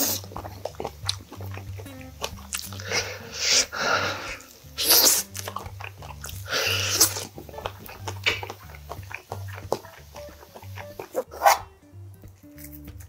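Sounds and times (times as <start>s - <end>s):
background music with bass: 0.0s - 13.0s
man biting and chewing meat: 0.0s - 13.0s.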